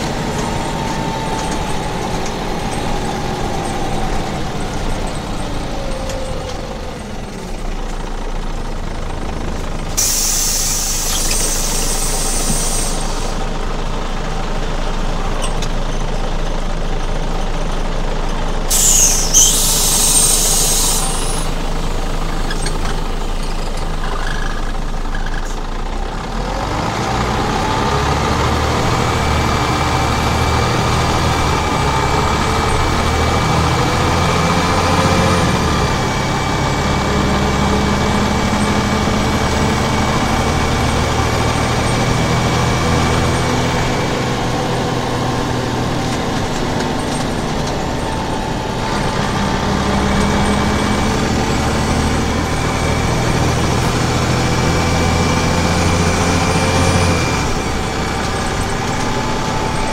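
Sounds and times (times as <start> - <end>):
bus diesel engine pulling away: 0.0 - 59.9
thin high whine: 18.7 - 21.6.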